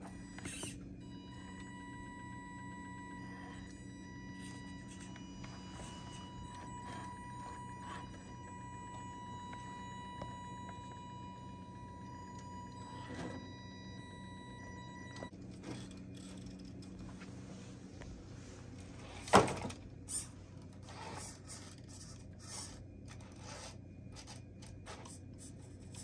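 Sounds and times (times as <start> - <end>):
high electric whine: 0.0 - 26.0.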